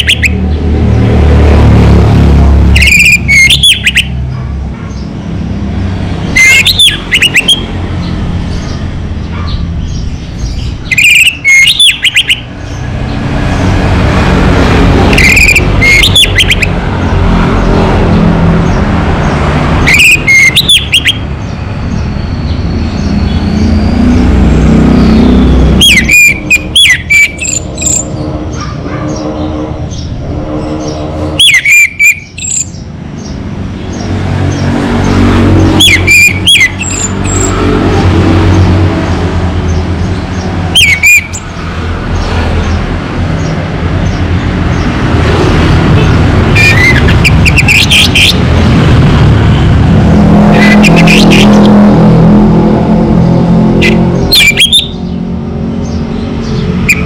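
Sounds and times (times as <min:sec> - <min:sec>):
thrush singing whistled phrases: 0:02.8 - 0:04.1, 0:10.8 - 0:12.5, 0:19.9 - 0:21.2, 0:25.8 - 0:28.1, 0:31.4 - 0:32.8, 0:40.8 - 0:41.5
steady low rumble: 0:25.0 - 0:31.4.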